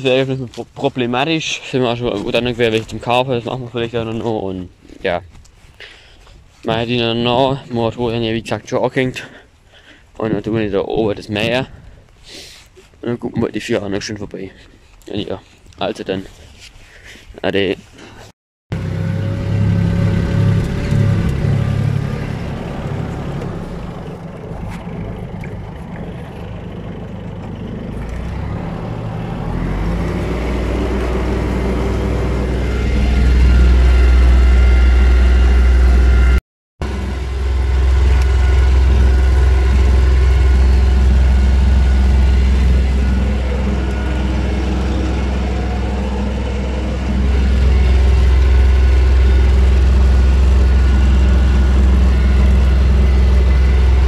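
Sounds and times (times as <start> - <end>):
tractor engine drone from cab: 18.7 - 54.0.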